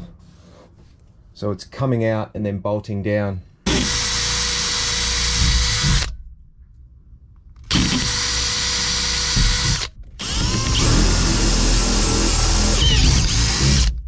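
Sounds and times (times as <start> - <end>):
electric drill whining: 3.7 - 6.1, 7.6 - 14.0.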